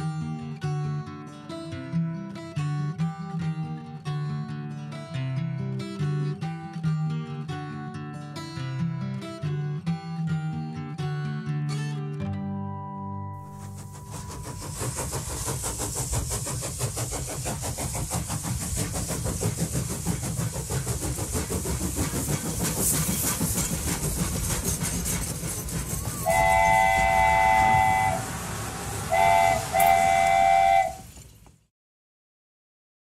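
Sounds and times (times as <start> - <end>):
train chord whistle: 13.4 - 15.8, 25.8 - 31.3
steam locomotive chugging: 13.4 - 31.7.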